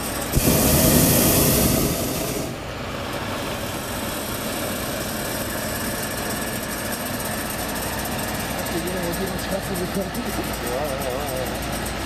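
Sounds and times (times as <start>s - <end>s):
propane burner hissing: 0.0s - 4.9s
low engine-like hum: 0.0s - 12.0s.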